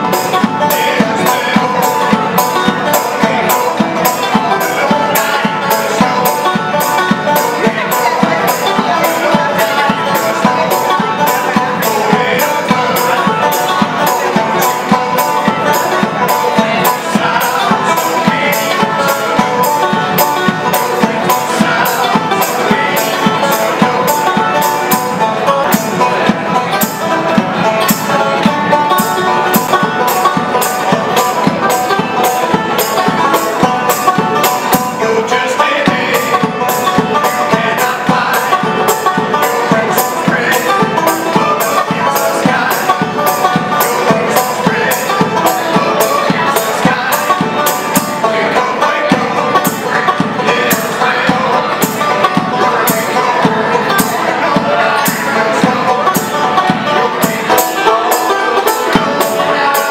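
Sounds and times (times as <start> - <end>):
banjo played fast: 0.0 - 59.9.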